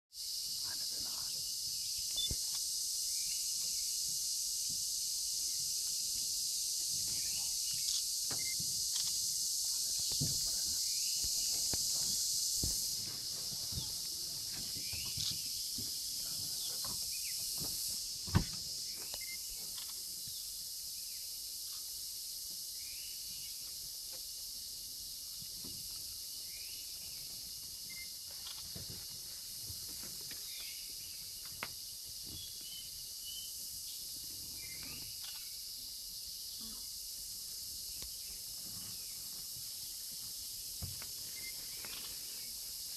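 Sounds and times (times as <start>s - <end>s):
insects buzzing: 0.1s - 42.9s.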